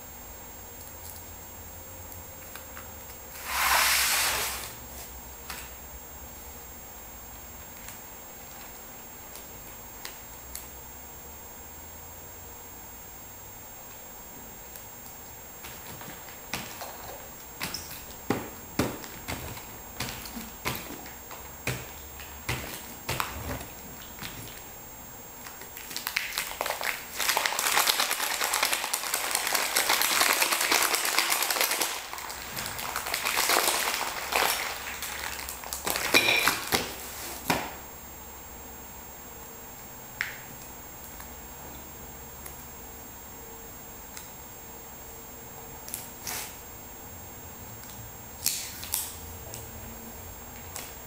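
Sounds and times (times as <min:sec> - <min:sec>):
tape crackling and crinkling: 0:25.4 - 0:37.5.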